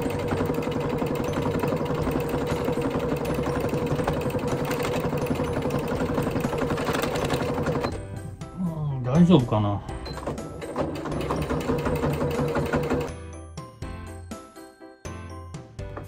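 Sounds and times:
sewing machine stitching: 0:00.0 - 0:08.0, 0:10.0 - 0:13.1.

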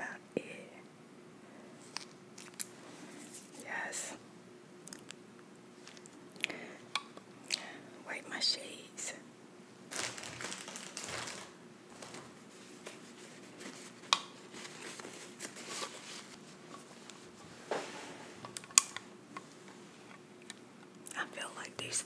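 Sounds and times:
soft rubbing and rustling: 0:02.7 - 0:03.8, 0:09.9 - 0:18.6.

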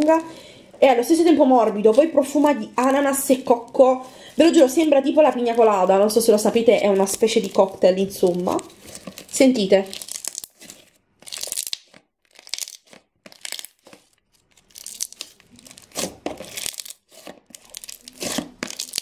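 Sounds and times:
crunchy slime squished by hand: 0:04.4 - 0:19.0.

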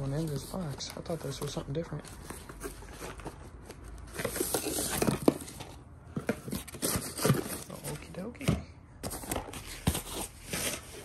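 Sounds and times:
cardboard rustling and scraping: 0:00.0 - 0:11.0.

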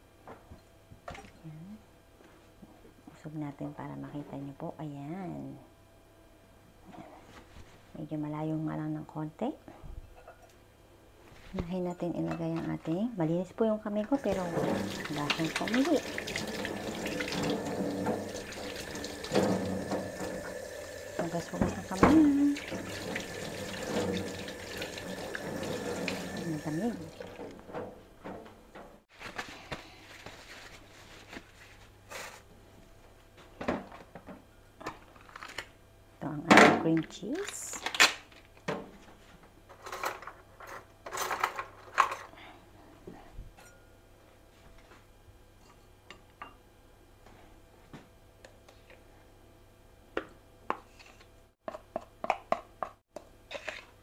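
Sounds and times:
cream cheese being unwrapped: 0:35.1 - 0:35.7.

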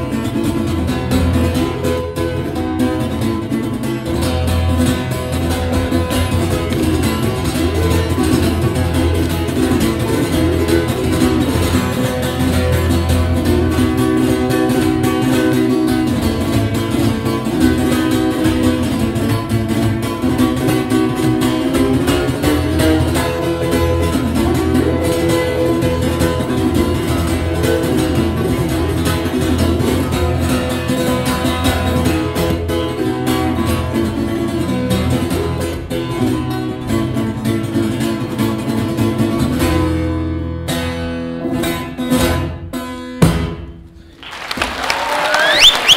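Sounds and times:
acoustic guitar fingerstyle: 0:00.0 - 0:44.2.

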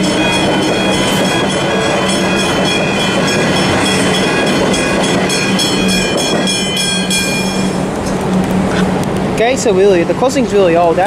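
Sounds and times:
level crossing warning bells: 0:00.0 - 0:08.7.

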